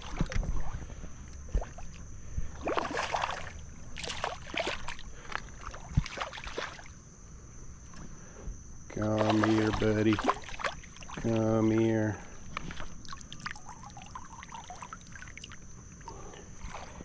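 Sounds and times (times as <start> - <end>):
water splashing in a creek: 0.0 - 0.8, 2.6 - 7.0, 9.0 - 15.7, 16.6 - 17.0.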